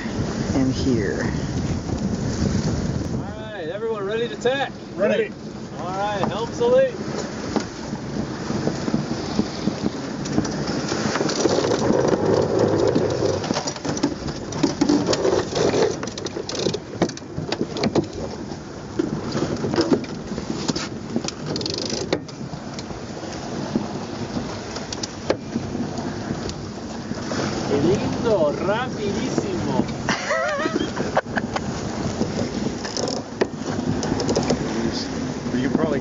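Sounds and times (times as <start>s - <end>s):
water rushing along hull: 0.0s - 36.0s
wind buffeting microphone: 0.0s - 36.0s
winch and rigging clicks: 8.5s - 27.7s, 28.6s - 35.0s.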